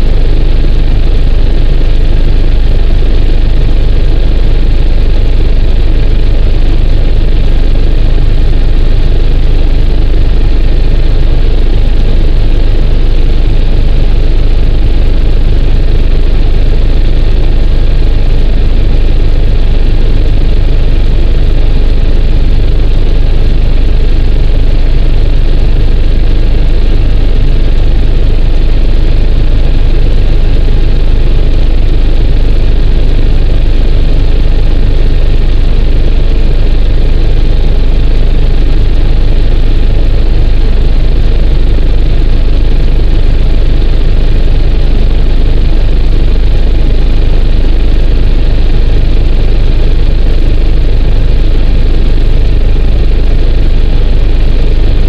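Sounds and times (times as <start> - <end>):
helicopter rotor and engine rumble: 0.0 - 38.0, 40.1 - 41.4, 42.0 - 46.3
faint turbine whine: 0.0 - 55.0.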